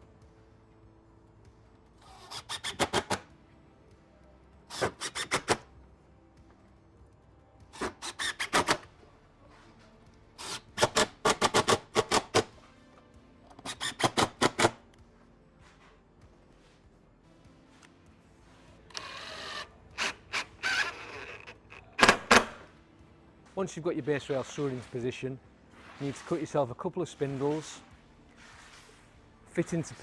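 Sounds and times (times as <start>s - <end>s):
impact driver driving screws: 2.1s - 3.2s, 4.7s - 5.6s, 7.8s - 8.9s, 10.4s - 12.5s, 13.5s - 14.8s, 18.9s - 22.6s.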